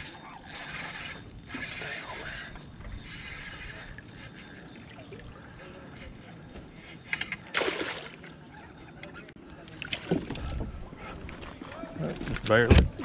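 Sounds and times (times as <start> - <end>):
fishing reel gears whirring: 0.0 - 7.6, 8.5 - 9.9.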